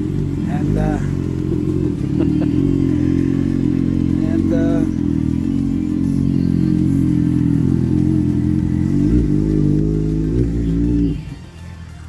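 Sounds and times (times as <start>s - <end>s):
motorcycle engine revs: 0.0s - 11.5s
motorcycle engines idling: 0.0s - 12.0s.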